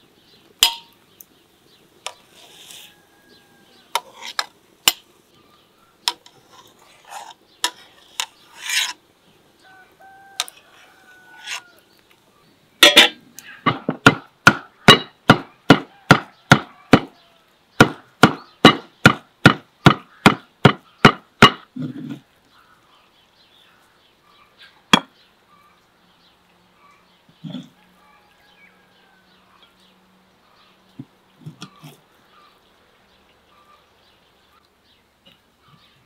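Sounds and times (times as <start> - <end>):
cleaver chopping meat on wood: 13.7 - 17.1, 17.8 - 21.6.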